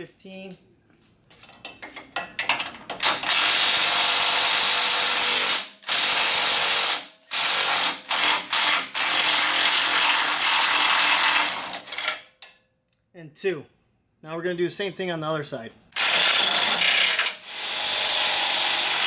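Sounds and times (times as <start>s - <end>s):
cordless impact driver hammering: 3.0s - 12.2s, 16.0s - 19.0s.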